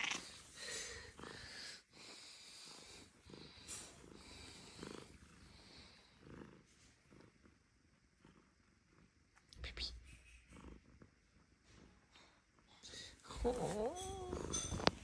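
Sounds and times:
soft breathy sounds: 0.2s - 7.3s.

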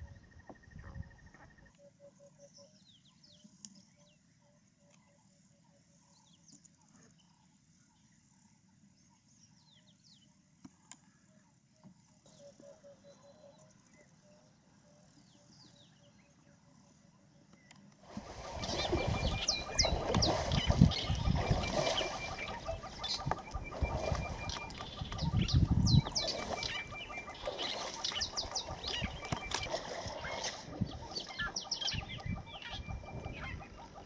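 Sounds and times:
many bird calls: 18.1s - 34.0s
high falling bird chirps: 18.2s - 33.9s.

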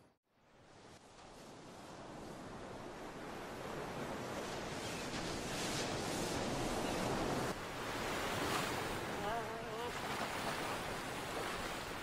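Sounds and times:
ocean surf washing ashore: 0.5s - 12.0s.

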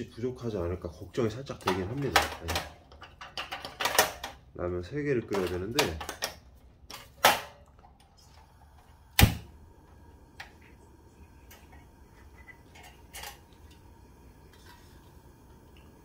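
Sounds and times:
gas stove click: 9.2s - 9.5s.

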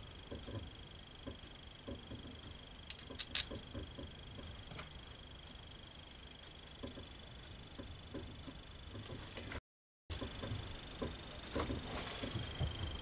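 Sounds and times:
metal parts clicking: 2.9s - 3.6s.

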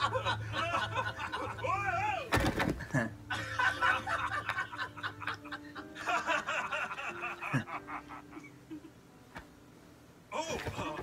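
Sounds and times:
man laughing: 0.0s - 2.1s, 2.8s - 9.0s.

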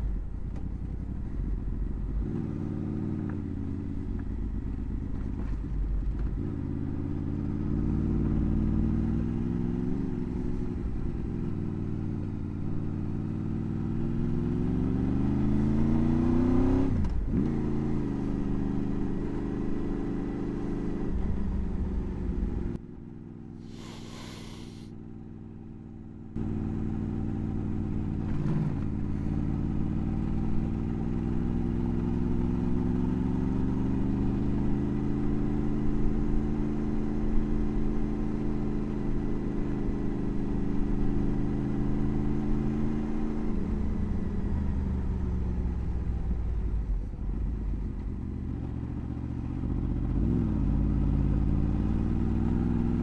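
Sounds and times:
motorcycle engine running: 17.2s - 53.0s.

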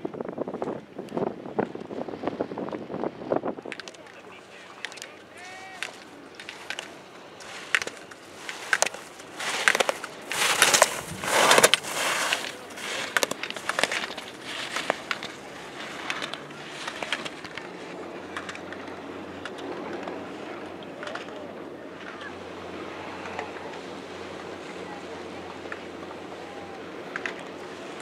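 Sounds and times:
skis scraping on snow: 3.8s - 20.2s.

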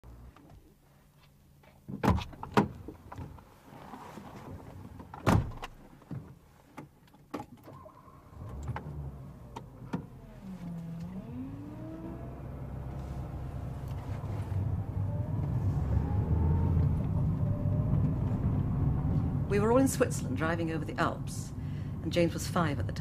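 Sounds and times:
car engine starting and revving: 7.8s - 23.0s.

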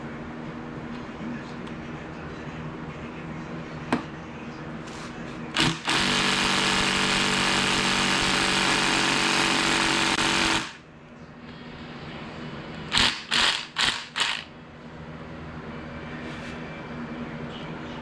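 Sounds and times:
steady low hum: 0.0s - 18.0s
impact wrench hammering: 5.6s - 10.8s, 12.9s - 14.5s.

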